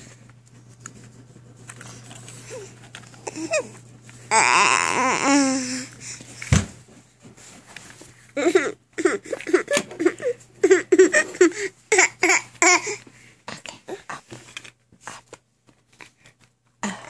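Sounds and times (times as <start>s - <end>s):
baby laughing: 8.4s - 13.0s.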